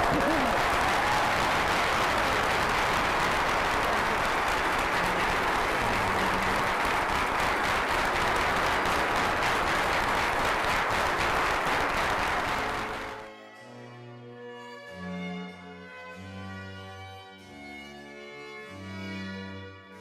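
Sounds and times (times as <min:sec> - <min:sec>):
congregation applauding: 0:00.0 - 0:13.3.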